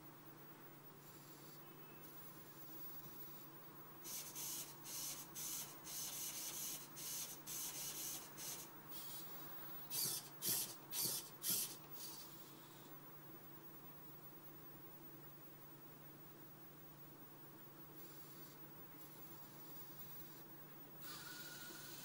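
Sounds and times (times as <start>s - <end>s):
servo motors whirring: 4.1s - 12.5s, 21.0s - 22.0s.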